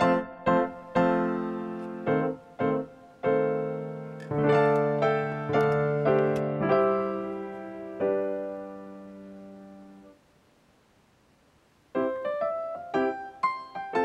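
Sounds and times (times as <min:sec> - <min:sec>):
slow piano tune: 0:00.0 - 0:10.2, 0:11.9 - 0:14.0.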